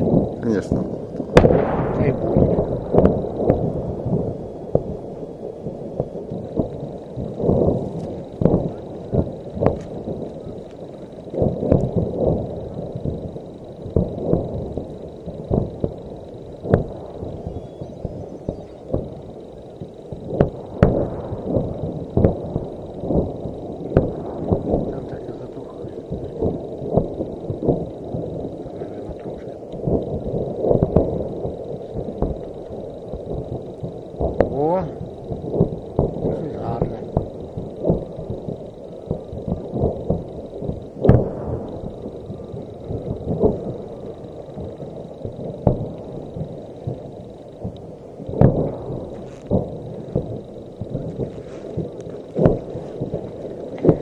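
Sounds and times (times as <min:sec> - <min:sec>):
low fire rumble: 0:00.0 - 0:54.0
ammunition exploding: 0:00.2 - 0:03.6.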